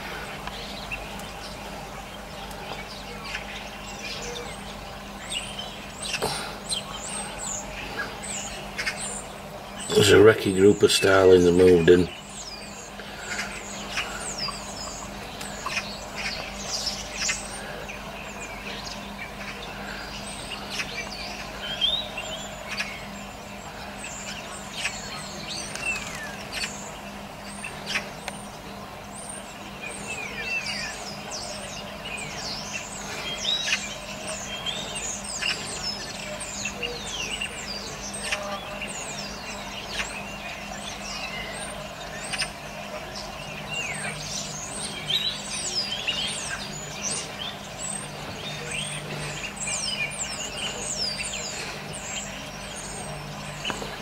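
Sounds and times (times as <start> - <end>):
starlings chattering: 0.0 - 54.0.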